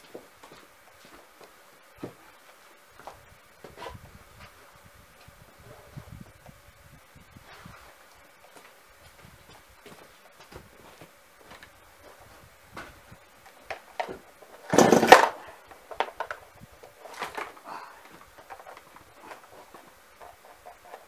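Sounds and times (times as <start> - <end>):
chainsaw pull-cord whirring rasp: 13.7 - 16.4.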